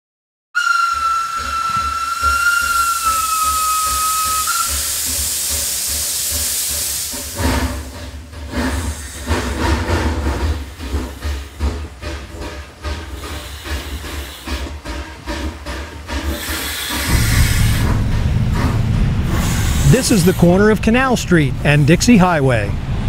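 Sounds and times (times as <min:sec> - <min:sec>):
steam whistle: 0:00.6 - 0:06.1
steam hissing: 0:00.6 - 0:22.1
steam locomotive chuffing: 0:00.6 - 0:23.0
low rumble: 0:17.1 - 0:23.0.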